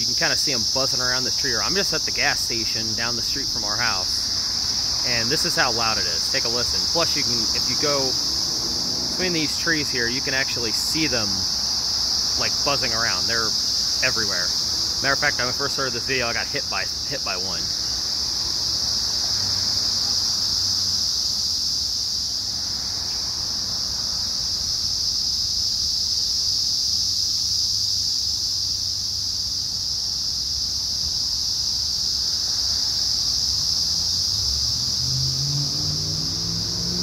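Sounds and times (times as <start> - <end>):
cicadas droning: 0.0 - 37.0
road traffic rumbling: 0.0 - 37.0
vehicle engine approaching: 1.9 - 13.4, 33.6 - 37.0.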